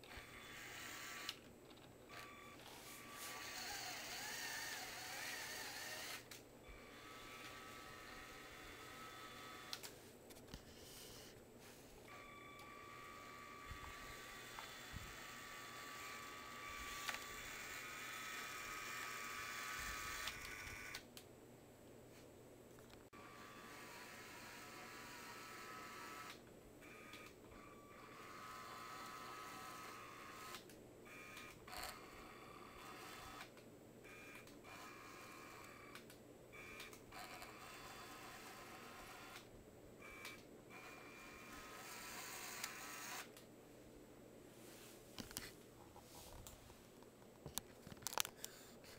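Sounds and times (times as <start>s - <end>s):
toy motor whining: 0.0s - 1.5s, 2.1s - 9.9s, 12.1s - 21.0s, 23.1s - 33.5s, 34.1s - 36.0s, 36.6s - 43.3s
clicks: 40.2s - 40.5s.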